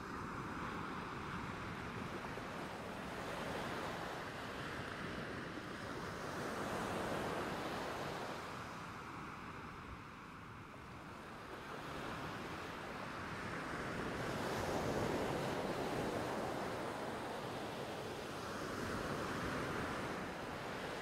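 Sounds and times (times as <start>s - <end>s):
wind: 0.0s - 21.0s
sea waves: 11.1s - 21.0s.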